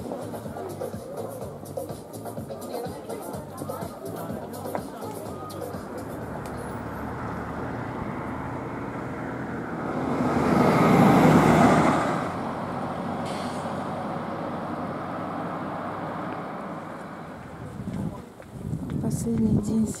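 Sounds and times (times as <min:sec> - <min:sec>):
road traffic noise: 0:00.0 - 0:20.0
car passing close by: 0:05.2 - 0:17.8.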